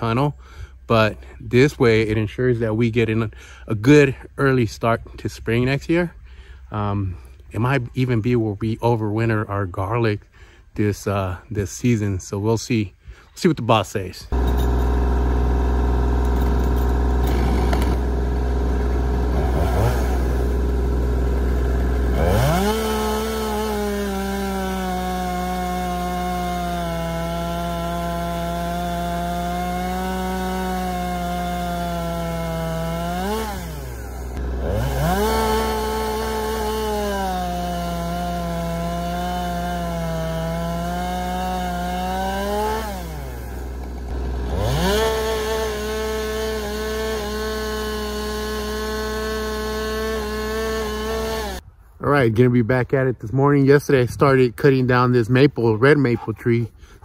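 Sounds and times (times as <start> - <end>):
chainsaw cutting wood: 14.3 - 51.6.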